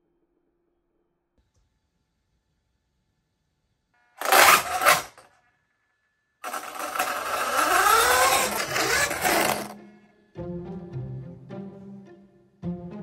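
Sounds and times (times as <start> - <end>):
electric motor revving and whining: 4.2 - 5.2, 6.4 - 9.8.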